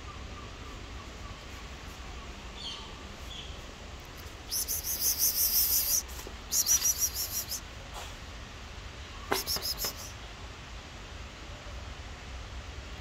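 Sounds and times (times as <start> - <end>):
insect trilling: 4.5 - 7.6, 9.3 - 10.1.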